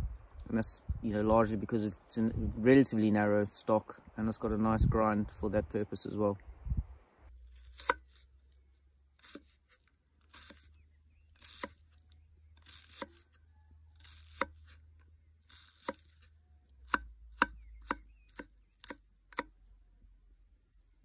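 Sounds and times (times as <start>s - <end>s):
knife chopping onion on wooden board: 7.8s - 8.0s, 16.9s - 19.5s.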